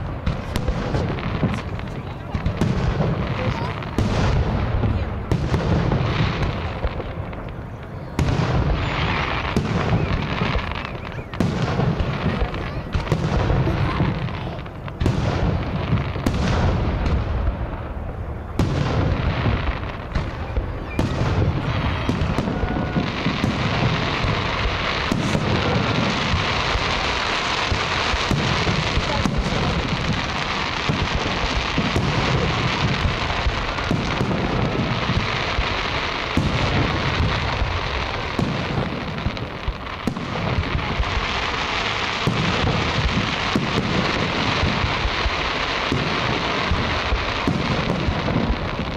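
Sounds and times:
dense firework crackle: 0.0s - 48.9s
firework shells booming: 0.0s - 48.9s.

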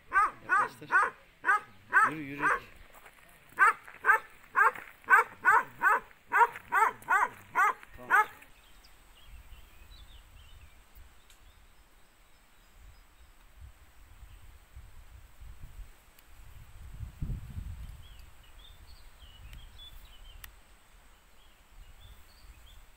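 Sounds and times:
dog barking: 0.1s - 2.7s, 3.6s - 8.4s.

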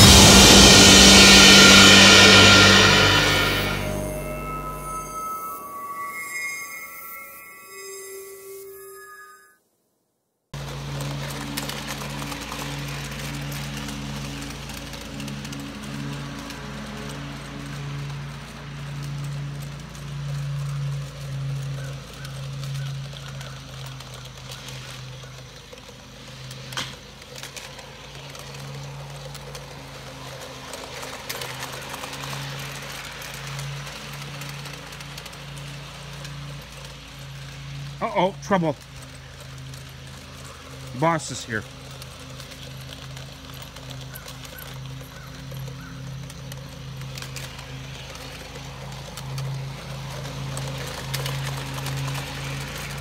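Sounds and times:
wheels rattling on rails: 0.0s - 8.2s, 10.6s - 53.0s
toy train motor hum: 10.6s - 53.0s.

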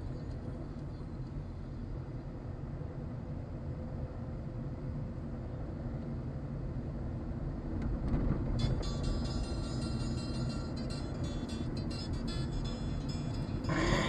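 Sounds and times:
car engine and tyres rumbling: 0.0s - 14.0s
steady higher-pitched tones: 8.6s - 14.0s.

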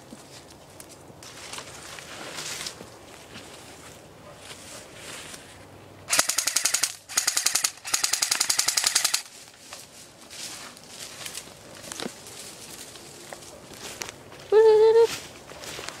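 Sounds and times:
airsoft rifle full-auto bursts: 6.1s - 9.3s.

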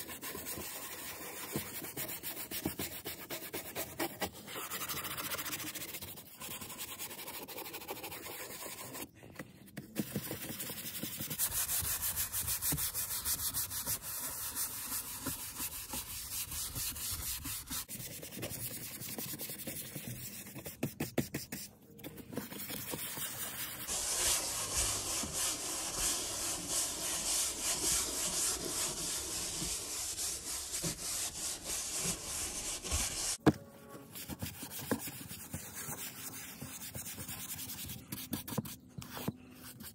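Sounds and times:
brush scrubbing plastic panel: 10.0s - 33.4s, 34.1s - 39.9s.

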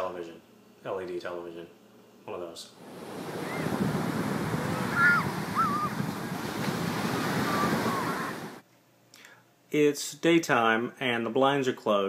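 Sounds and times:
wind: 1.8s - 8.8s
ocean surf: 2.8s - 8.6s
faint high wavering calls: 3.2s - 3.8s, 4.6s - 6.4s, 7.1s - 8.6s.

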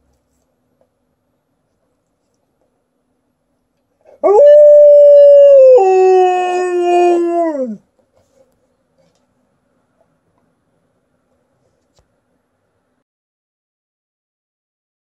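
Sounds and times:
dog howling: 4.2s - 7.8s.

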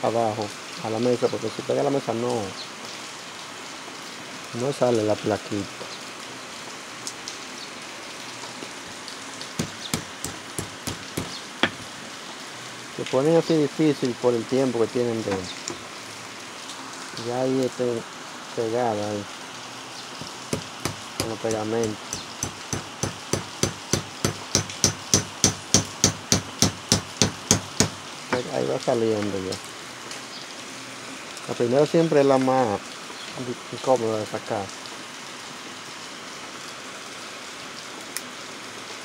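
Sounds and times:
steady hiss: 0.0s - 35.0s
hammer tapping on metal: 9.6s - 11.9s, 20.2s - 28.5s.

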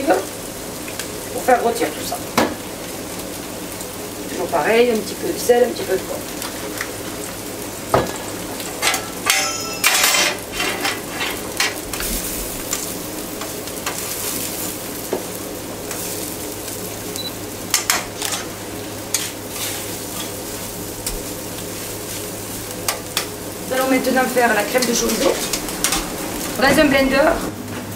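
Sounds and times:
food sizzling on griddle: 0.0s - 27.9s
metal tongs scraping griddle: 8.6s - 12.8s, 17.7s - 22.3s, 24.7s - 27.0s.

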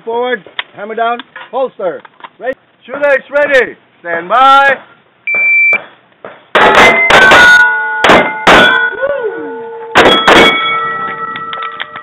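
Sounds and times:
shot timer beep: 5.3s - 5.8s
pistol shots: 6.5s - 8.9s, 10.0s - 10.7s
steel plates clanging: 6.6s - 9.0s, 9.7s - 12.0s.

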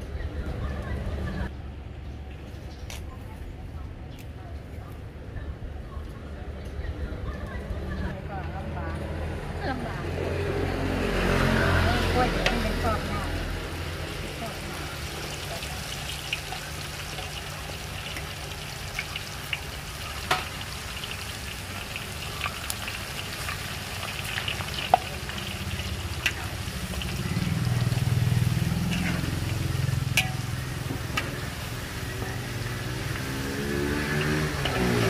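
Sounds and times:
oil sizzling and bubbling: 12.2s - 35.0s
low engine hum: 25.0s - 35.0s.

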